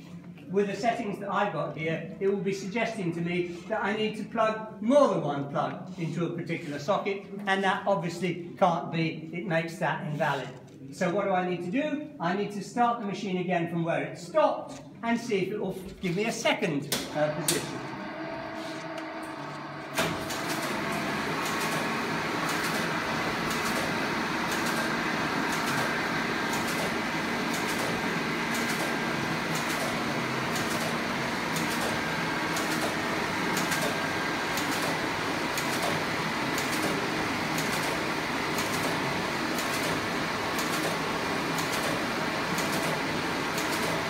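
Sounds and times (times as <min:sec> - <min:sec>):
electric motor running machine: 0:17.2 - 0:35.6
regular mechanical clicking: 0:20.0 - 0:24.9, 0:25.5 - 0:44.0.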